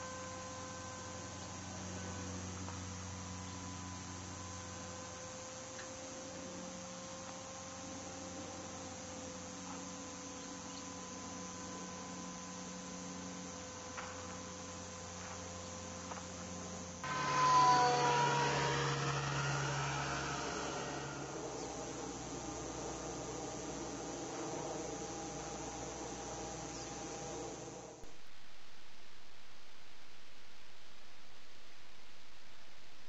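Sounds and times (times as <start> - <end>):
steady electrical hum: 0.0 - 33.0
faint steady tones: 8.4 - 33.0
rush of noise with falling whine: 17.0 - 33.0.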